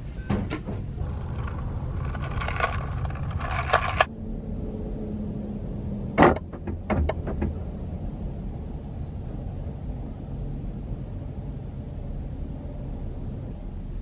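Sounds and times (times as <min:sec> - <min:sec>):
car rumbling inside cabin: 0:01.0 - 0:04.1.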